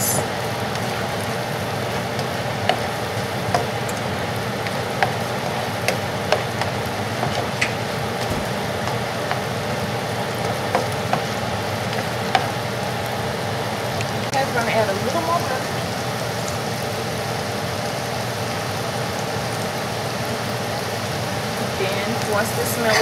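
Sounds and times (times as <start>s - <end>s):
onions sizzling in butter: 0.0s - 23.0s.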